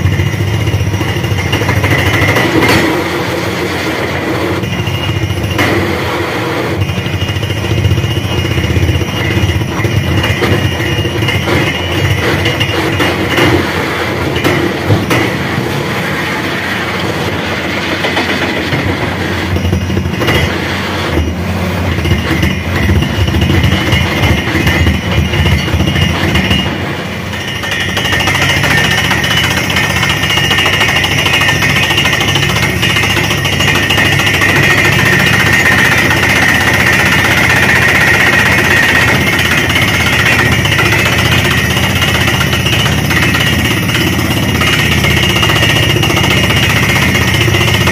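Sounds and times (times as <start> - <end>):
drilling rig hammering clatter: 0.0 - 47.9.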